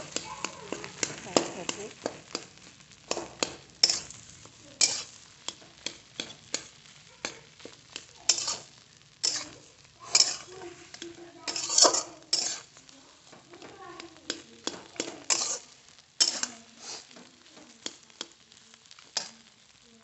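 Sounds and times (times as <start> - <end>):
spatula scraping a frying pan: 0.0 - 19.8
light sizzle of frying: 0.0 - 20.0.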